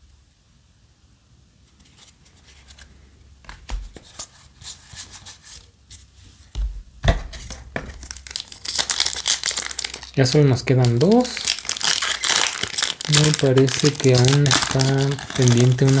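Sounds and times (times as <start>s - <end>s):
cards sliding and scraping: 1.7s - 6.1s.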